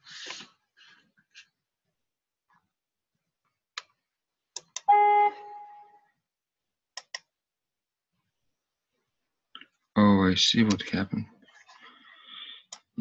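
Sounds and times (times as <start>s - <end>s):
computer mouse clicks: 7.0s - 7.3s.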